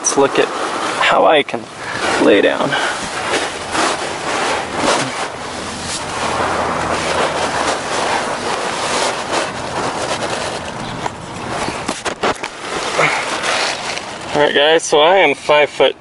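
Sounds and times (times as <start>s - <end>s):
tent fabric rustling: 0.0s - 15.9s
wind on microphone: 1.6s - 14.3s.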